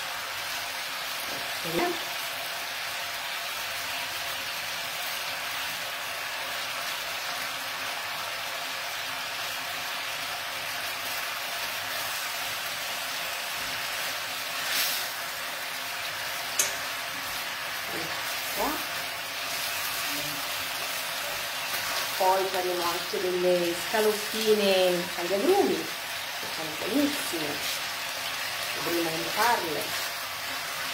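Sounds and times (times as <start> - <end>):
food sizzling in a pan: 0.0 - 30.9.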